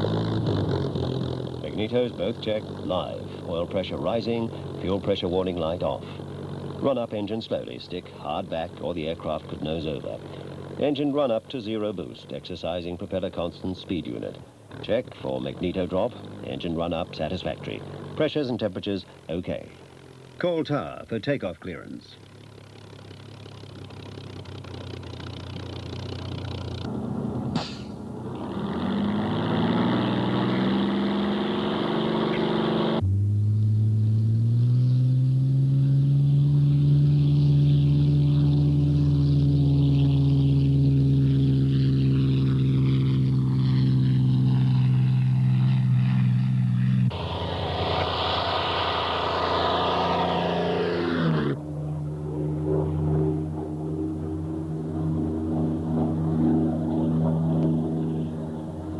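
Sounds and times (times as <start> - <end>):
propeller plane engine drone: 0.0 - 58.9.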